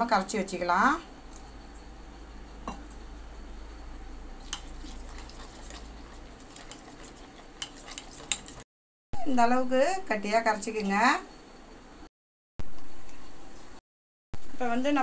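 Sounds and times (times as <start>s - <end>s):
spoon clinking against metal bowl: 4.4s - 8.6s
spoon stirring paste in bowl: 4.4s - 8.6s.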